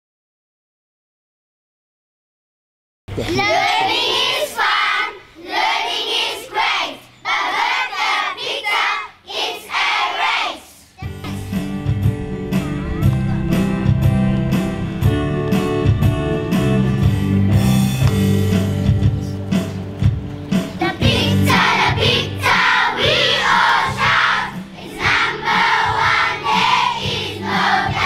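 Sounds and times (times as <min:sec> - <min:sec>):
children chanting: 0:03.2 - 0:11.0, 0:20.8 - 0:28.0
music with strong bass beat: 0:11.0 - 0:28.0.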